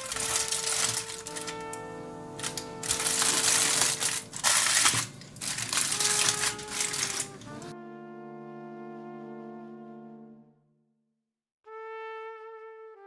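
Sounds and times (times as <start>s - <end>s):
background music with brass: 0.0s - 4.9s, 5.5s - 10.6s, 11.7s - 13.0s
aluminium foil crinkling: 0.0s - 7.7s.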